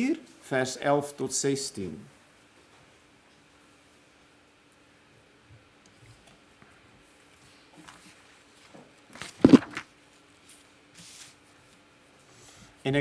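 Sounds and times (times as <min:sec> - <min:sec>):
low steady hum: 0:00.0 - 0:13.0
rustling and handling noises: 0:07.0 - 0:12.0.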